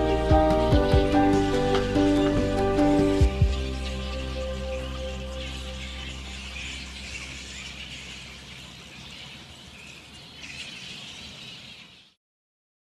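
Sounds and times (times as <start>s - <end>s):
background music: 0.0s - 8.0s
birds chattering: 0.0s - 12.2s
insects chirring: 0.0s - 12.2s.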